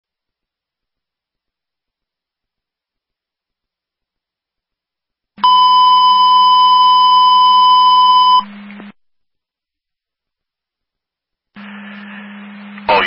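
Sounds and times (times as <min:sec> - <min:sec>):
burst of radio static: 0:11.6 - 0:13.0.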